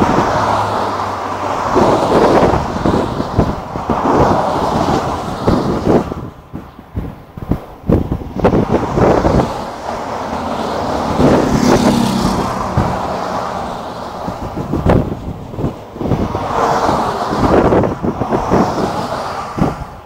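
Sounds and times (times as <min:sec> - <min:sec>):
vehicles passing at speed: 0:00.0 - 0:20.0.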